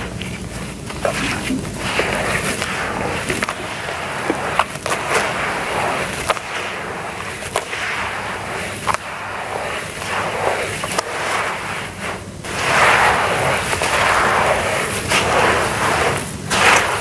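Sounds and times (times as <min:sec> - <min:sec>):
hands squishing gritty mud: 0:00.0 - 0:11.1
crackles of grit: 0:00.0 - 0:17.0.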